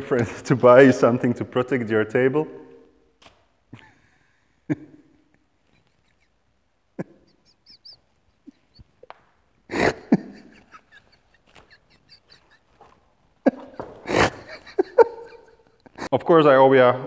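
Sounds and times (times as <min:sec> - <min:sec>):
man laughing breathlessly: 0:03.7 - 0:09.1, 0:09.7 - 0:16.2.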